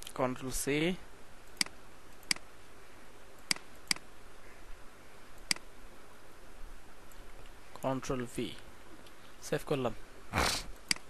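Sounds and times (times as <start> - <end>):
computer mouse clicks: 1.4 - 2.4, 3.4 - 4.1, 5.4 - 5.7, 10.8 - 11.0.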